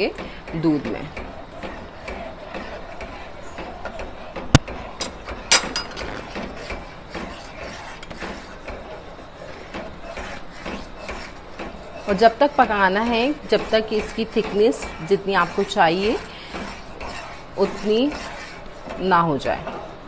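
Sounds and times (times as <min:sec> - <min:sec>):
metal spoon scraping steel pot: 0:05.0 - 0:08.5, 0:09.5 - 0:19.6.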